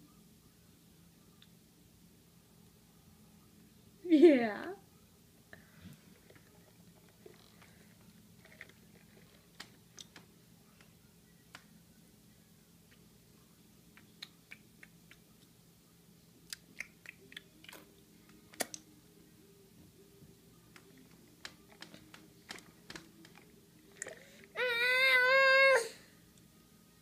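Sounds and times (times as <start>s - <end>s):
baby mouth smacks: 16.5s - 17.8s, 18.5s - 18.8s.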